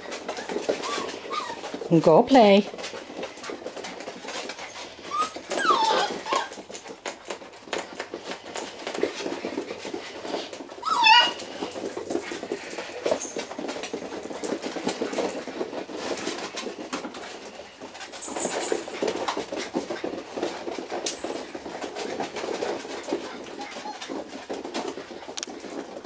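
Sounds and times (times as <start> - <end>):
claws clicking on vinyl floor: 0.0 - 1.9, 2.6 - 26.0
puppy squeaks: 0.3 - 1.8, 5.0 - 6.6, 10.8 - 11.4, 23.6 - 24.2.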